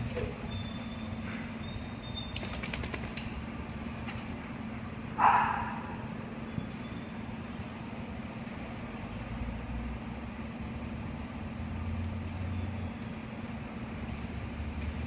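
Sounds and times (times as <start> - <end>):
dog bark: 5.2 - 6.1.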